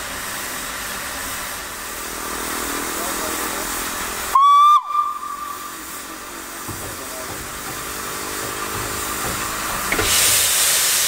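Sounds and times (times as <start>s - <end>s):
steam locomotive whistle blast: 4.3s - 5.9s.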